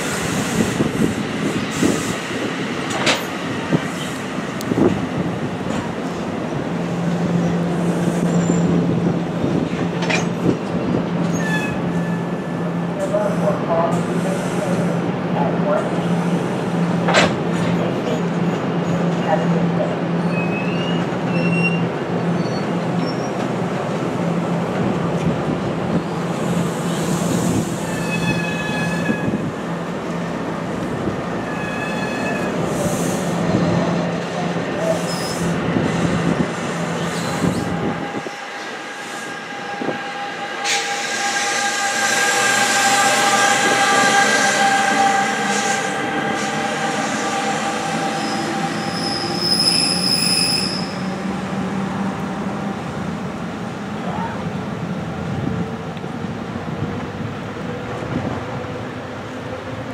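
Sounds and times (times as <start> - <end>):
train rumbling on rails: 0.0 - 59.9
train rushing noise: 0.0 - 59.9
electric train high whine: 35.1 - 54.2
wheel squeals: 48.2 - 51.0.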